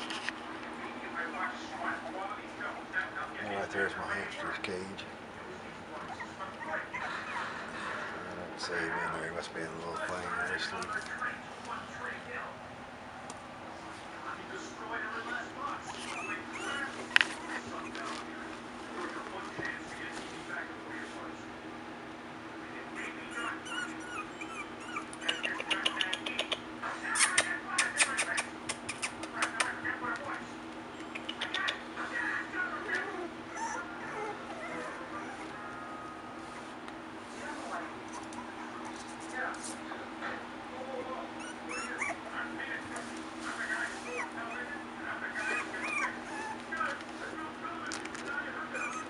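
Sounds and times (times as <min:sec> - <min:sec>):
steady low hum: 0:00.0 - 0:49.0
puppies whimpering: 0:05.9 - 0:09.1, 0:15.8 - 0:18.3, 0:23.0 - 0:26.1, 0:32.2 - 0:35.7, 0:41.3 - 0:42.4, 0:43.6 - 0:47.0, 0:48.6 - 0:49.0
puppies yipping: 0:15.8 - 0:18.2, 0:23.0 - 0:26.1, 0:32.9 - 0:35.5, 0:41.4 - 0:42.4, 0:44.0 - 0:46.7, 0:48.7 - 0:49.0.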